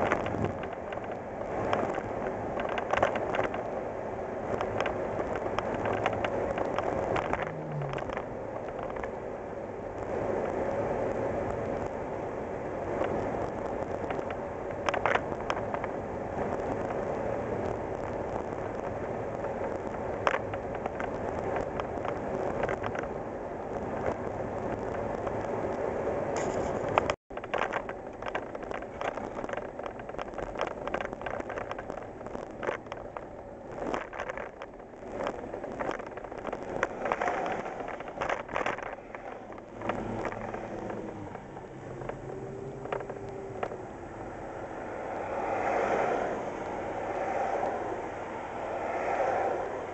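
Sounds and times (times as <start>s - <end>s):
engine and road noise: 0.0s - 49.9s.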